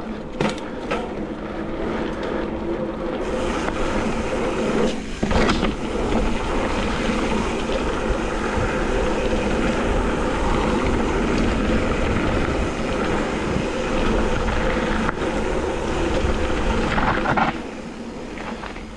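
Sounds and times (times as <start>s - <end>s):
dirt bike riding noise: 0.0s - 18.9s
wind rush on microphone: 0.0s - 18.9s.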